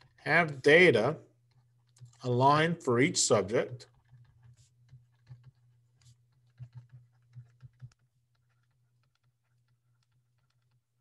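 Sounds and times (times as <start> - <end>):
stylus tapping on screen: 3.9 - 10.8.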